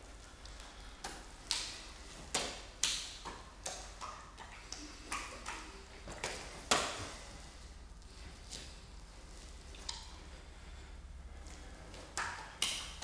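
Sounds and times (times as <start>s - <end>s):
wet slaps into hands: 0.4s - 7.1s, 12.0s - 13.0s.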